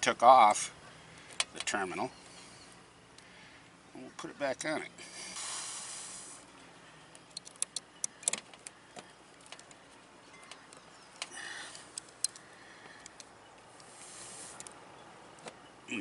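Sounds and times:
small metallic clicks: 7.1s - 13.9s.

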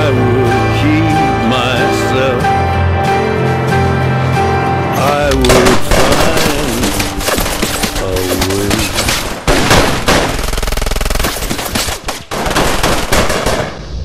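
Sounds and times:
volley of gunshots: 5.4s - 13.9s.

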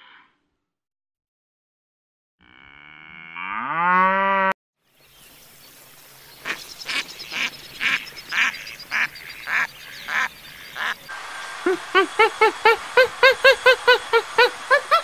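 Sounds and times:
cow mooing: 2.4s - 4.5s
goose honking: 6.5s - 12.9s.

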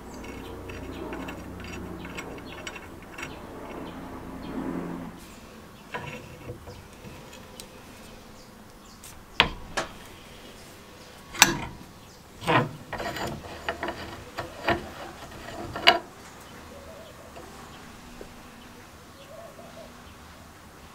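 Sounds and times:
metallic thread scrapes and clicks: 0.0s - 4.6s, 5.9s - 8.3s, 11.3s - 16.4s, 17.4s - 18.3s.

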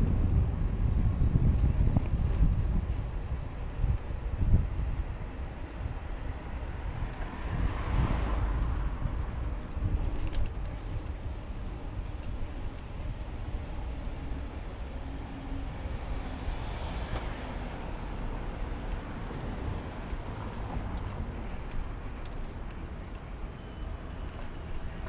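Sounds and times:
road noise: 0.0s - 25.0s
wind rumble: 0.0s - 25.0s
car passing: 4.7s - 12.2s, 12.8s - 25.0s.

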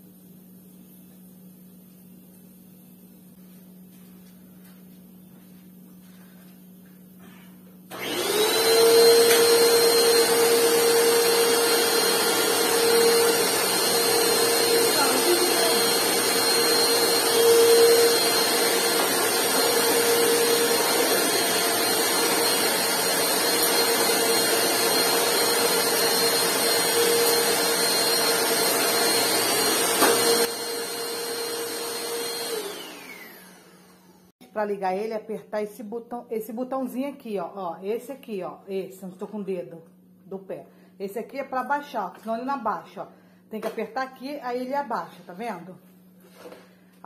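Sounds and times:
vacuum cleaner switch: 7.9s - 27.6s, 28.9s - 30.5s
vacuum cleaner motor whining: 7.9s - 34.3s.

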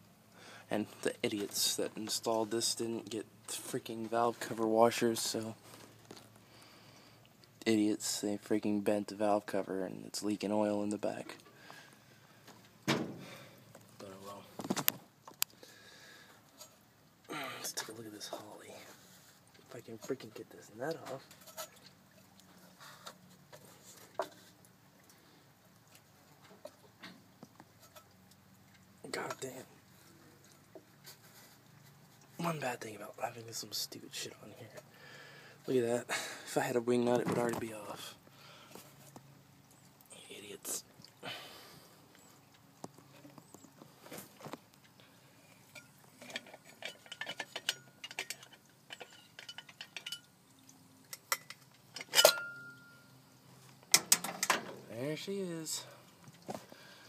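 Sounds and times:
metallic clank with ringing: 51.4s - 53.1s.

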